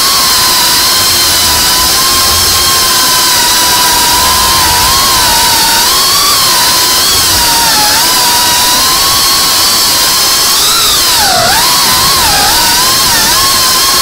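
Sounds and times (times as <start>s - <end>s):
hiss: 0.0s - 14.0s
quadcopter motors whining: 0.0s - 14.0s.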